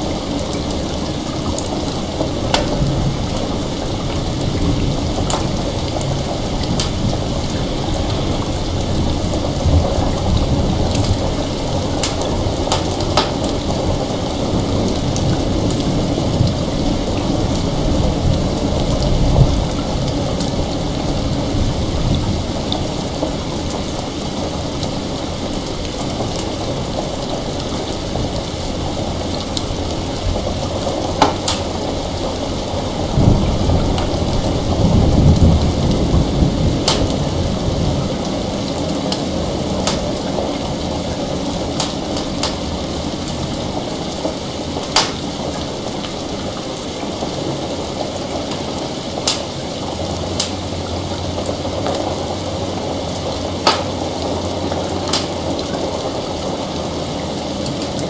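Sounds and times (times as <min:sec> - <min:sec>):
distant thunder rolling: 0:00.0 - 0:57.3
heavy rain: 0:00.0 - 0:58.0
sharp pops: 0:44.9 - 0:45.2.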